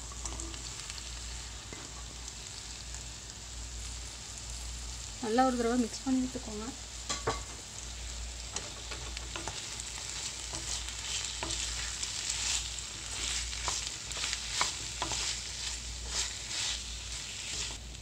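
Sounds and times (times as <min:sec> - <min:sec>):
vegetables sizzling in oil: 0:00.0 - 0:18.0
spatula scraping pan: 0:08.5 - 0:17.8.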